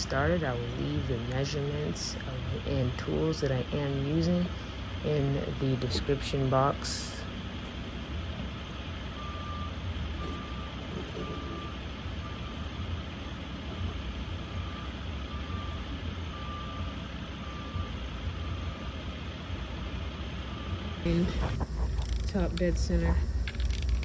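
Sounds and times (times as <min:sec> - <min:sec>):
low rumble of vehicle: 0:00.0 - 0:24.0
vehicle backup alarm beeping: 0:08.7 - 0:19.5, 0:20.2 - 0:24.0.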